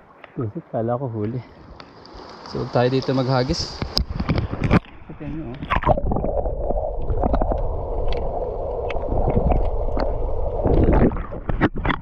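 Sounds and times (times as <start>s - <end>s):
rushing sloshing water: 1.6s - 12.0s
low wind rumble: 2.5s - 12.0s.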